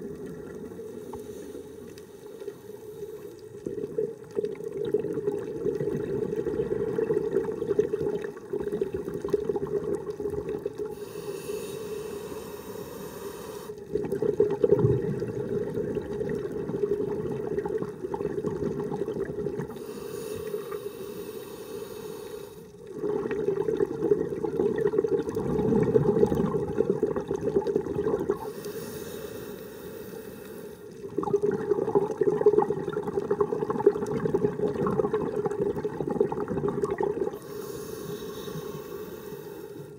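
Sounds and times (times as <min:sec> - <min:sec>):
bubbling exhale through regulator: 0:00.0 - 0:39.9
hissing inhale through regulator: 0:00.4 - 0:03.7, 0:10.8 - 0:14.1, 0:19.7 - 0:23.0, 0:28.3 - 0:31.1, 0:37.3 - 0:39.9.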